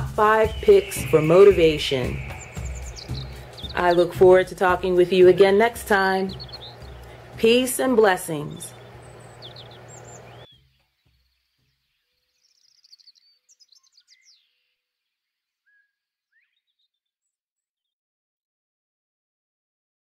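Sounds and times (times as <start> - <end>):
low hum: 0.0 - 10.5
faint bird chirps: 0.4 - 4.2, 6.3 - 7.3, 8.6 - 17.7.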